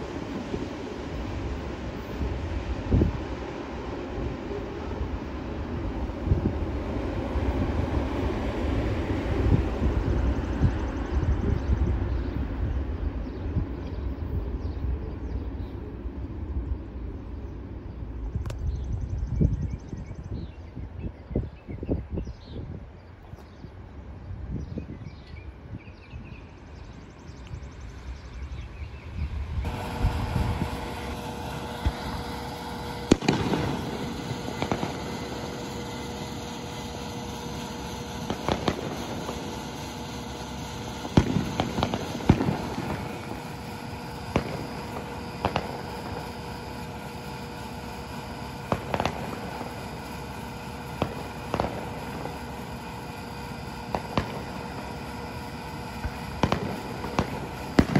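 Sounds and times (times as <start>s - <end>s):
rail machine engine rumble: 0.0s - 57.9s
sharp bangs and clanks: 29.7s - 53.1s.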